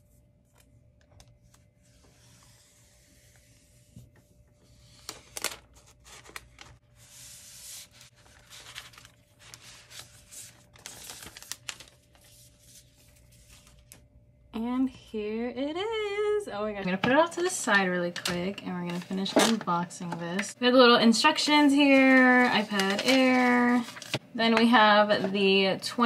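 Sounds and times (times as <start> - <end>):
packaging rustling and crinkling: 7.8 - 12.6, 21.8 - 24.2
packaging tearing: 8.2 - 12.0.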